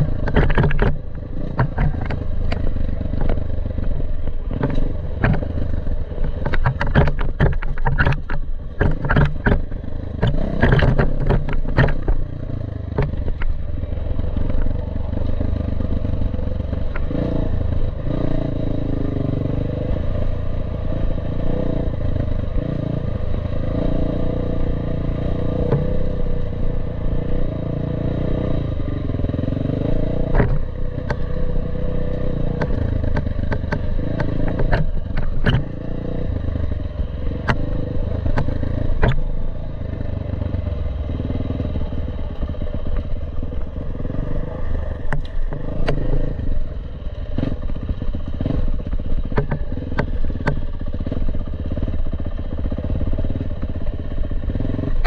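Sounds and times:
dirt bike engine revving: 0:08.8 - 0:13.2, 0:21.2 - 0:51.9.

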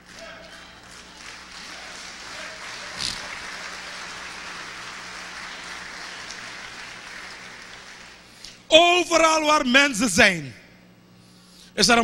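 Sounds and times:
congregation applauding: 0:00.0 - 0:08.3.

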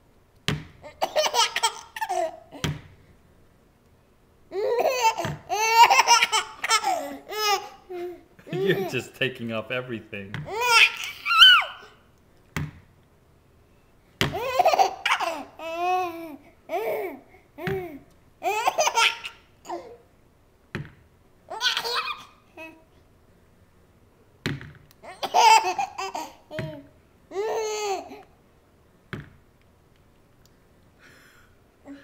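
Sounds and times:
baby laughing: 0:00.8 - 0:02.6, 0:04.5 - 0:09.2, 0:10.5 - 0:12.0, 0:14.3 - 0:20.0, 0:21.5 - 0:22.9, 0:25.0 - 0:28.3.

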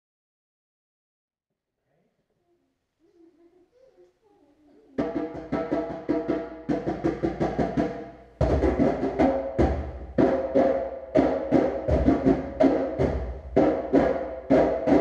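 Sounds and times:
deep heavy drum: 0:05.0 - 0:15.0
hand drums playing fast rhythm: 0:05.0 - 0:15.0.

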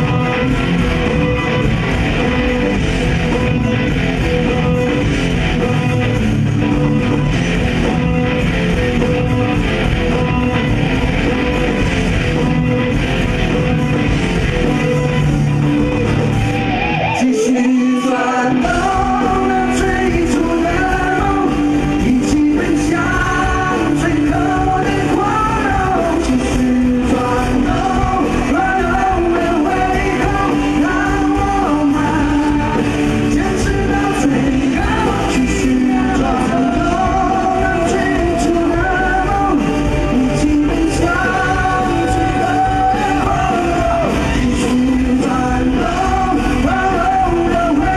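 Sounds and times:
bass: 0:00.0 - 0:47.9
drums: 0:00.0 - 0:47.9
electric guitars: 0:00.0 - 0:47.9
person singing: 0:17.0 - 0:47.9.

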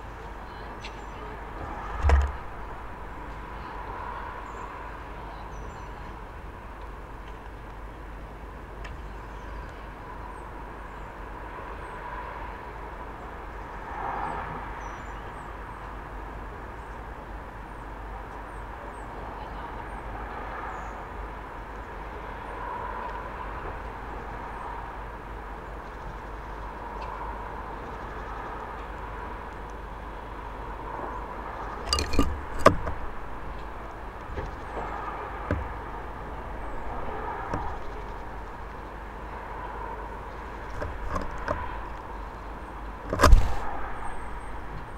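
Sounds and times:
distant traffic hum: 0:00.0 - 0:44.9
birds knocking on wooden feeder: 0:01.9 - 0:02.6, 0:31.8 - 0:33.2, 0:34.4 - 0:35.9, 0:37.5 - 0:38.3, 0:40.6 - 0:41.8, 0:43.1 - 0:43.6.

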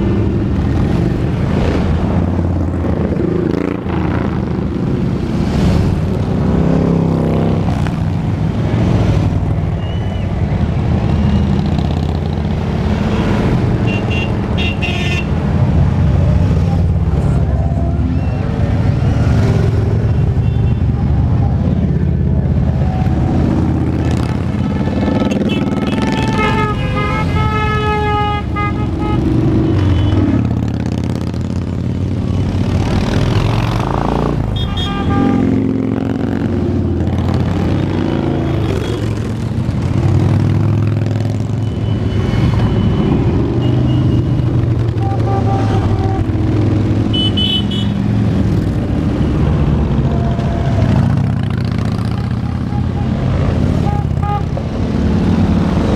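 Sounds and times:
motorcycles rumbling past: 0:00.0 - 0:09.3, 0:29.4 - 0:34.6, 0:35.2 - 0:47.1, 0:47.9 - 0:53.8
motorcycle revving: 0:00.0 - 0:09.8, 0:10.4 - 0:27.5, 0:28.2 - 0:55.9
horn blaring: 0:24.6 - 0:30.2.

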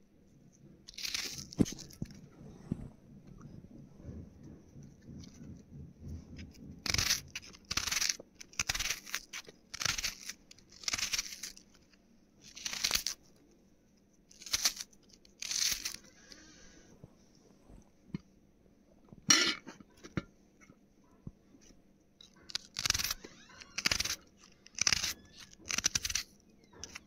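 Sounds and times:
quiet handling: 0:00.0 - 0:08.5, 0:16.0 - 0:25.7
knife cutting onion: 0:00.9 - 0:02.2, 0:05.2 - 0:11.6, 0:12.5 - 0:13.2, 0:14.3 - 0:16.3, 0:22.2 - 0:27.0.

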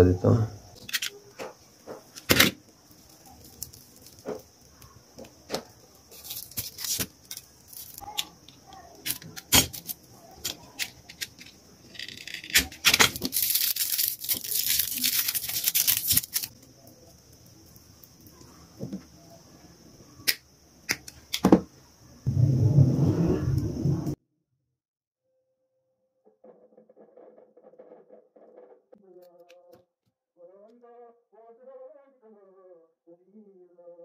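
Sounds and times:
foil shielding rustling and tearing: 0:06.1 - 0:08.2, 0:09.1 - 0:16.6.

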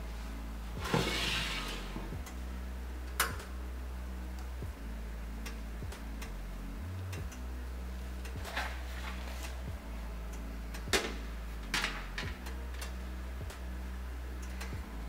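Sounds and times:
steady low hum: 0:00.0 - 0:15.0
metal baking tray scraping and clanking: 0:00.8 - 0:02.0
light ticking: 0:04.3 - 0:08.5, 0:09.4 - 0:15.0.

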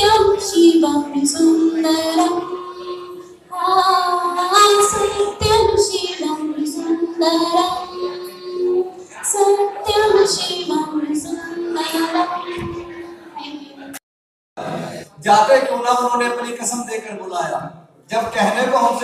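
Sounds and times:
woman singing into microphone: 0:00.0 - 0:13.4.

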